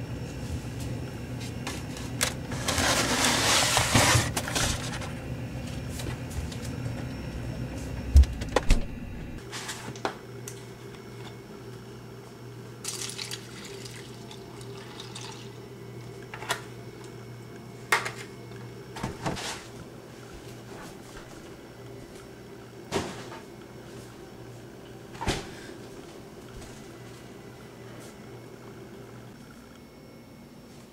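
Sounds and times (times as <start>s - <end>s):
steady low hum: 0.0s - 30.9s
milk pouring over cereal: 12.8s - 15.5s.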